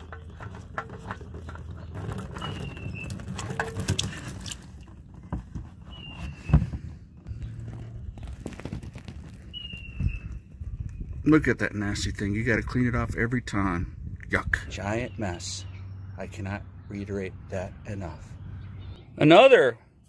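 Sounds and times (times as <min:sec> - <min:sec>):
oil filter clicks and knocks: 0:00.0 - 0:09.4.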